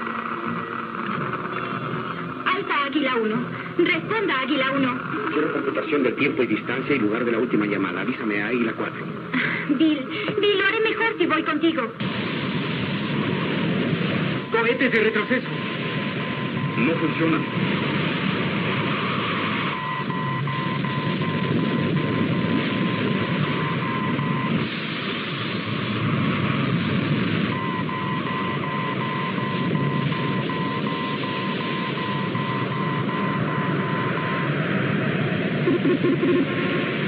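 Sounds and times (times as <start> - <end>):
electronic warning alarm pulsing: 12.0 - 26.5, 27.4 - 35.0
rushing rocket engine: 12.0 - 37.0.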